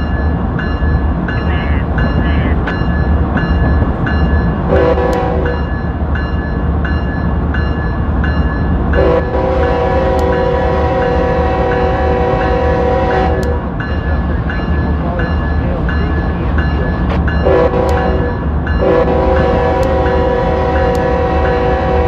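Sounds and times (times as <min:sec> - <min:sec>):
locomotive bell ringing: 0:00.0 - 0:22.0
diesel locomotive horn: 0:04.7 - 0:05.7, 0:09.0 - 0:13.7, 0:17.4 - 0:22.0.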